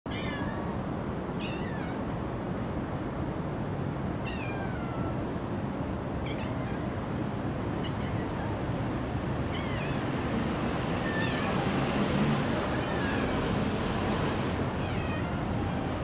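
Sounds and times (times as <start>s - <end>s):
cats meowing: 0.1s - 0.8s, 1.4s - 2.0s, 4.2s - 5.2s, 6.2s - 7.0s, 7.7s - 10.1s, 11.0s - 11.7s, 12.6s - 16.0s.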